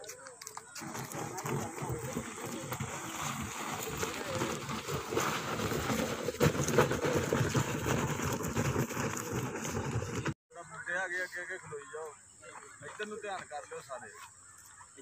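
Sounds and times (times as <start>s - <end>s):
tyre scraping across stony dirt: 0.0s - 10.4s.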